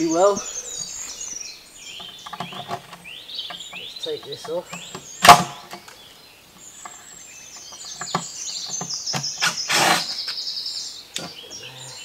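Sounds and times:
songbird trilling: 0:00.0 - 0:12.0
wooden box scraping on concrete: 0:07.9 - 0:10.4.

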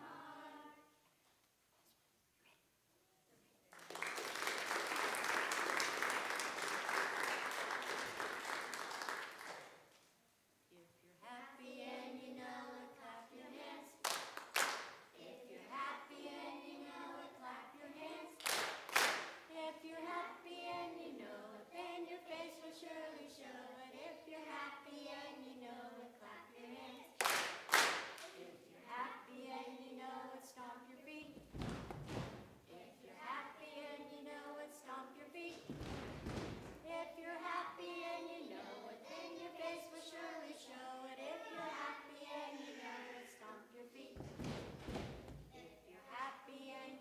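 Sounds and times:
children singing unaccompanied: 0:00.0 - 0:01.0, 0:11.2 - 0:14.2, 0:15.1 - 0:18.7, 0:19.5 - 0:31.4, 0:32.7 - 0:35.8, 0:36.8 - 0:44.6, 0:45.4 - 0:47.0
applause: 0:03.7 - 0:09.8, 0:14.0 - 0:15.0, 0:18.4 - 0:19.3, 0:27.2 - 0:28.3.

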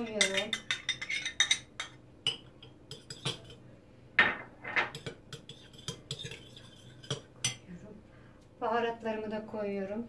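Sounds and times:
metal spoon clinking on glass bowl: 0:00.0 - 0:03.6, 0:04.8 - 0:07.6.

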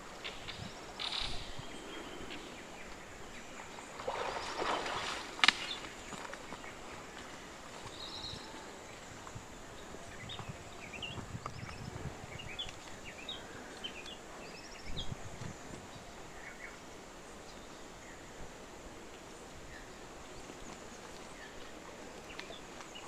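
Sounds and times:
rustle: 0:00.0 - 0:23.0
animal splashing through water: 0:03.7 - 0:08.0.

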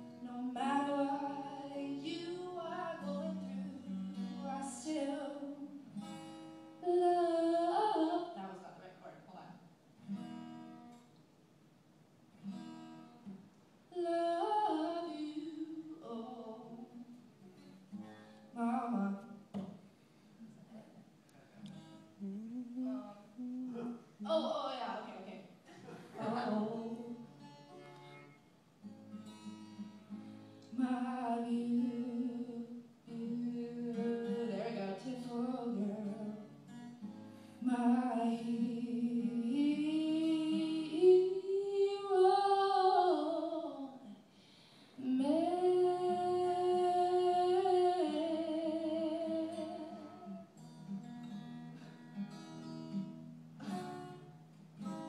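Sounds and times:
acoustic guitar: 0:00.0 - 0:55.0
woman singing: 0:00.1 - 0:05.9, 0:06.8 - 0:08.6, 0:13.9 - 0:17.2, 0:18.6 - 0:19.4, 0:22.2 - 0:25.3, 0:26.2 - 0:27.3, 0:30.7 - 0:36.6, 0:37.6 - 0:44.2, 0:45.0 - 0:50.4.

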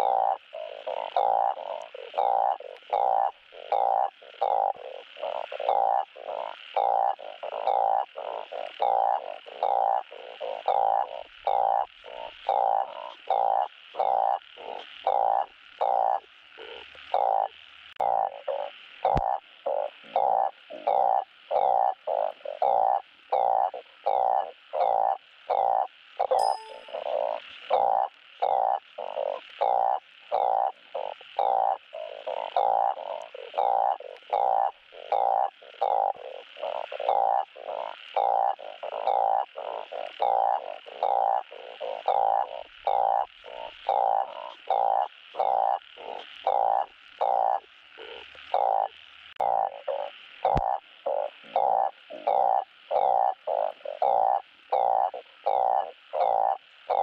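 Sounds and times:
frog croaking: 0:00.0 - 0:57.0.

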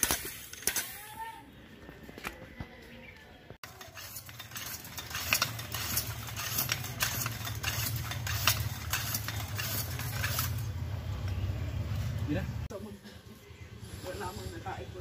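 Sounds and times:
hand pump clicking: 0:03.6 - 0:10.6.

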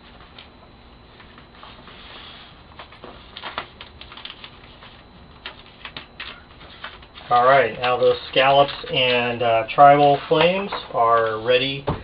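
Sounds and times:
paper rustles: 0:01.2 - 0:09.1.

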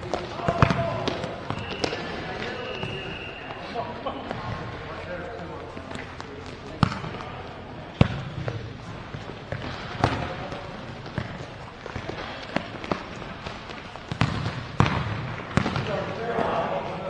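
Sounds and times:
background noise: 0:00.0 - 0:17.0
ball kicked and bouncing: 0:05.9 - 0:07.3, 0:08.0 - 0:16.0.

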